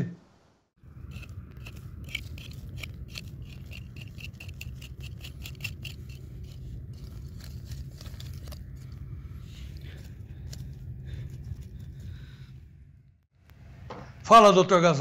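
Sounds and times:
knife scraping dry soil: 0:00.8 - 0:12.1
low rumble: 0:00.8 - 0:14.2.

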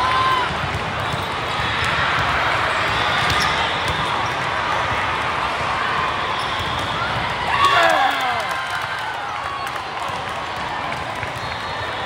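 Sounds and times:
hubbub of many voices: 0:00.0 - 0:12.0
volleyballs struck and bouncing: 0:00.4 - 0:04.6.

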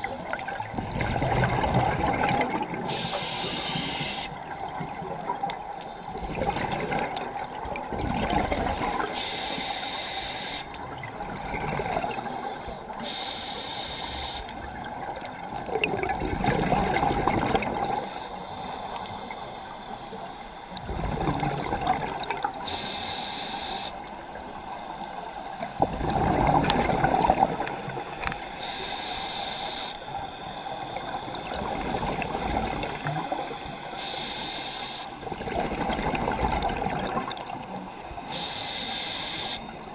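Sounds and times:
rush of bubbles: 0:00.0 - 0:03.1, 0:06.2 - 0:09.1, 0:10.8 - 0:12.3, 0:14.8 - 0:18.0, 0:20.8 - 0:22.6, 0:25.7 - 0:28.2, 0:31.0 - 0:33.6, 0:35.2 - 0:37.8
regulator hiss on inhale: 0:02.8 - 0:04.4, 0:08.4 - 0:10.8, 0:11.9 - 0:14.7, 0:17.8 - 0:21.0, 0:22.6 - 0:25.8, 0:28.3 - 0:31.8, 0:33.3 - 0:35.2, 0:37.9 - 0:39.9.

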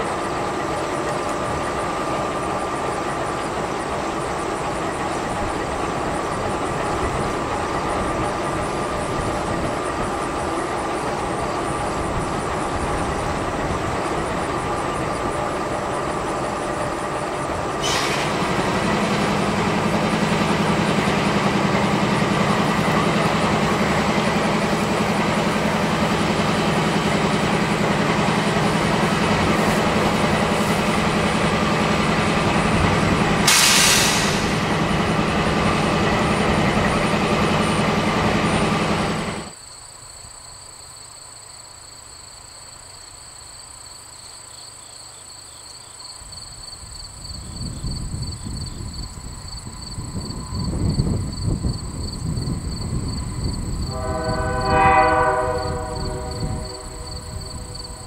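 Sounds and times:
diesel locomotive idling: 0:00.0 - 0:39.6, 0:46.2 - 0:58.0
air hiss: 0:17.8 - 0:18.6, 0:33.4 - 0:34.8.

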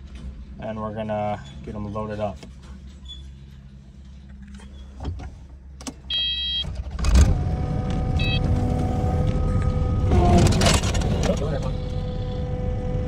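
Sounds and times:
short electronic beeps: 0:06.1 - 0:06.7, 0:08.2 - 0:08.5
diesel engine idling and revving: 0:06.2 - 0:13.0
engine whine: 0:06.6 - 0:13.0.

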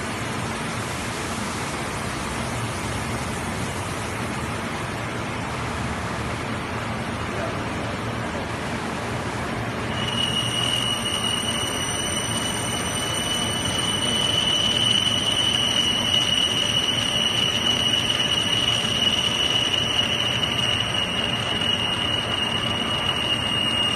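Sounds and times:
milling cutter whine: 0:09.9 - 0:23.9.

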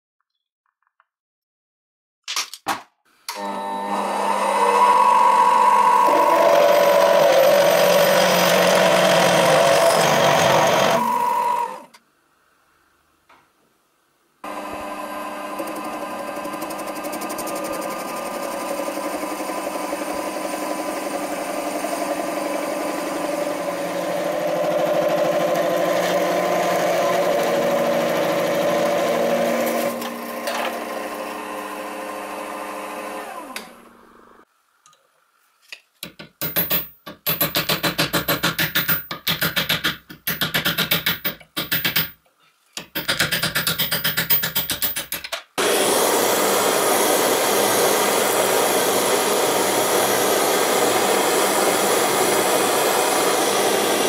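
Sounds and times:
lathe machine whine: 0:03.4 - 0:11.9, 0:14.4 - 0:34.4, 0:45.6 - 0:54.0.

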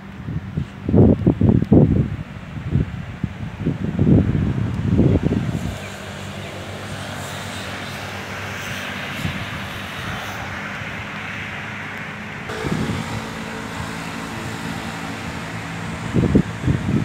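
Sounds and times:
road traffic rushing: 0:00.0 - 0:17.0
low rumble: 0:12.5 - 0:17.0.

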